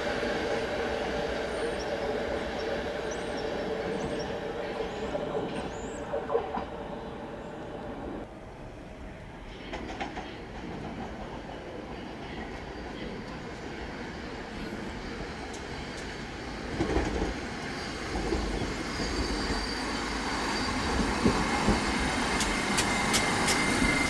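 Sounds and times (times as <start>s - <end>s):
train wheels rumbling: 9.2s - 24.0s
train motor whine: 18.1s - 24.0s.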